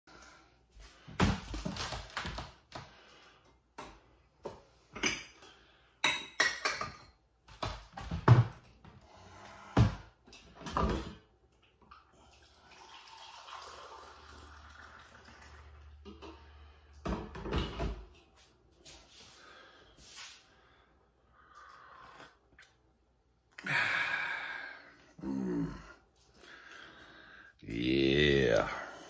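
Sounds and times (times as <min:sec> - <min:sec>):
dishes clinking in cupboard: 0:05.0 - 0:05.4, 0:06.0 - 0:07.2.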